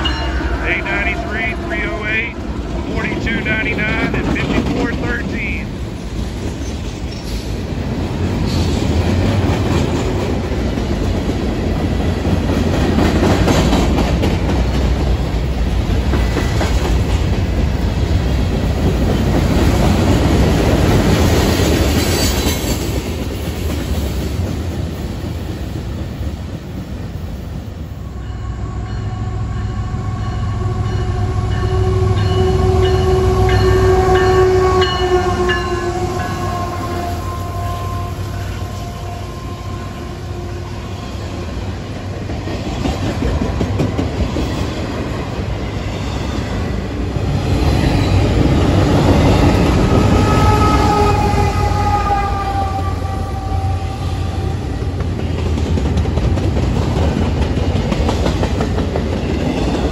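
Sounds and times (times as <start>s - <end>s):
diesel locomotive engine rumble: 0.0s - 22.1s
freight train wheels on rails: 0.0s - 59.9s.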